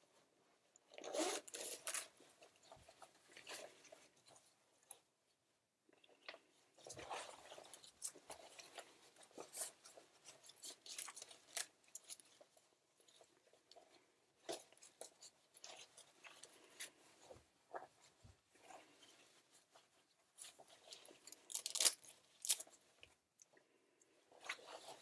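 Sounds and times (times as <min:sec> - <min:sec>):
fabric rustling and crinkling: 0:00.0 - 0:05.1, 0:06.2 - 0:25.0
small clicks and scrapes: 0:00.8 - 0:05.1, 0:05.9 - 0:25.0.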